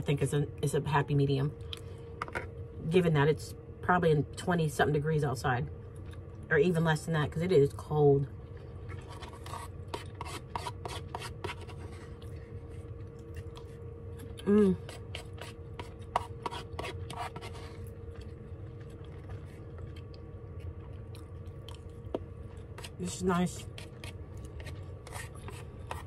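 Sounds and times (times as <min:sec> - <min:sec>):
plastic spoon scraping paper bowl: 0:08.9 - 0:12.1, 0:14.8 - 0:17.8, 0:22.8 - 0:26.0
heater humming: 0:11.4 - 0:26.0.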